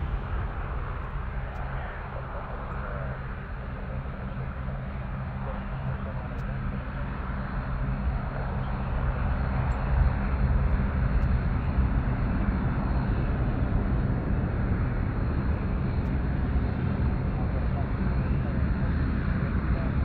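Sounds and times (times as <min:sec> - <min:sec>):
jet engine rumble: 0:00.0 - 0:20.0.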